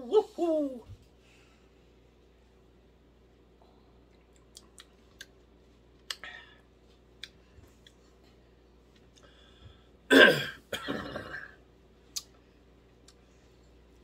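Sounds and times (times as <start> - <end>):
wet lip smacks and tongue clicks: 4.1 - 6.3, 7.2 - 8.0, 12.1 - 12.4.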